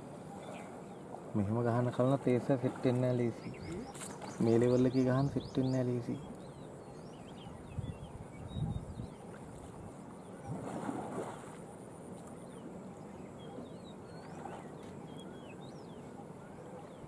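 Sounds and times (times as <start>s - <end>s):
water sloshing and splashing: 0.3s - 4.5s, 9.2s - 12.6s, 14.1s - 15.2s
bird chirps: 3.0s - 9.2s, 12.4s - 17.0s.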